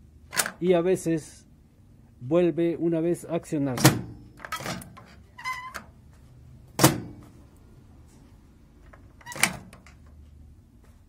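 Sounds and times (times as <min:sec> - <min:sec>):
microwave door latch clacking: 0:03.7 - 0:05.0, 0:06.8 - 0:07.2.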